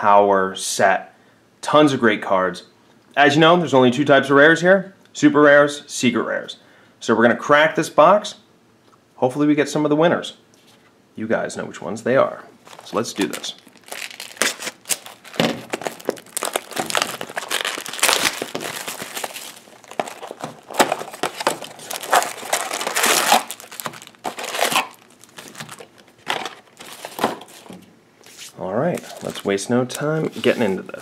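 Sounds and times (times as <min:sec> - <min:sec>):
plastic packaging crinkling: 0:12.6 - 0:31.0.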